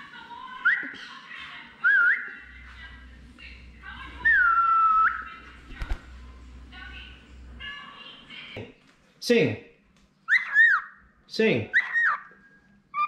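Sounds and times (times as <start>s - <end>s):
bird wings flapping: 5.6s - 6.1s.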